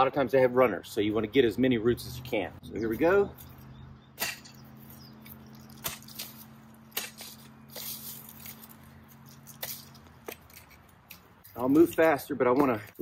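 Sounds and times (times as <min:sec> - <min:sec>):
tines scraping rocky soil: 0:04.2 - 0:13.0.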